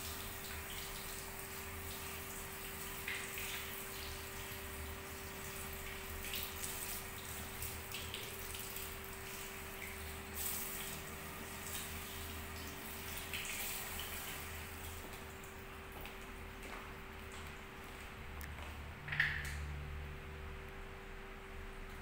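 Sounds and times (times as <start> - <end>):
shower head spraying water on hair: 5.8 - 15.1.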